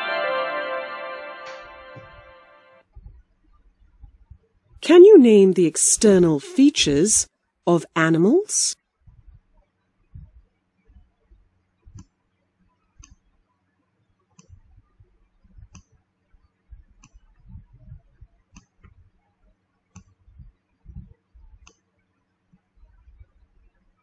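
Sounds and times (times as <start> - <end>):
soft low thuds: 9.0 - 12.0, 16.7 - 19.1, 20.2 - 21.7.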